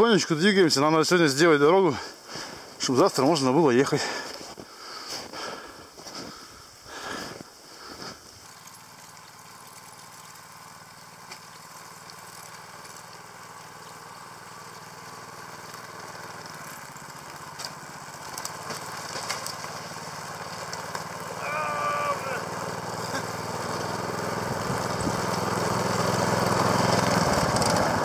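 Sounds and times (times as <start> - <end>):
small engine running: 7.7 - 28.0.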